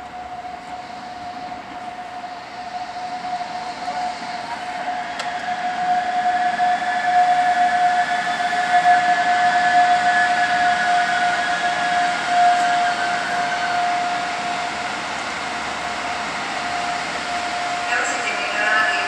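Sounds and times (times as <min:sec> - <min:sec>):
electric locomotive whine: 0:00.0 - 0:19.0.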